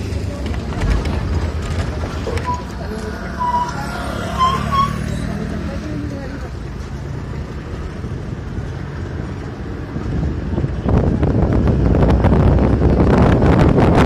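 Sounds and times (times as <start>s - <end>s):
bus rumbling along road: 0.0s - 14.0s
wind buffeting microphone: 7.6s - 14.0s.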